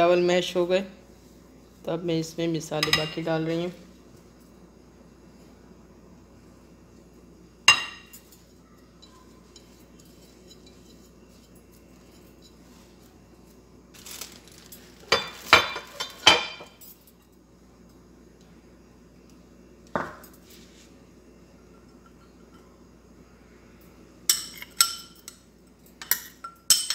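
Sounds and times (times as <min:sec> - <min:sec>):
dishes clinking against glass bowl: 0:07.7 - 0:08.4, 0:26.0 - 0:26.9.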